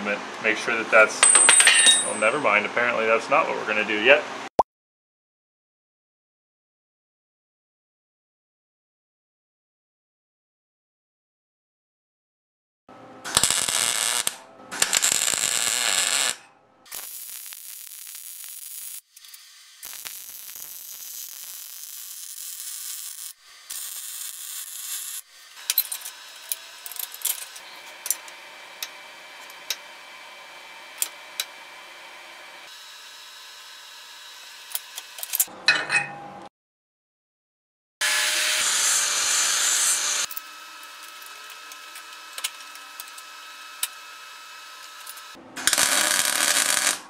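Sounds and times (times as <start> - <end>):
sharp welding pops: 13.3 - 25.8, 45.1 - 47.0
welder hissing and crackling: 13.3 - 30.0, 32.6 - 35.2, 38.0 - 47.0.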